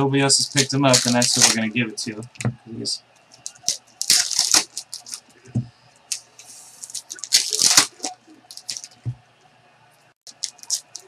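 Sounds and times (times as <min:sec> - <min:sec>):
cards clicking and rustling: 0:00.6 - 0:01.7, 0:03.4 - 0:05.3, 0:06.1 - 0:09.1, 0:10.3 - 0:11.0.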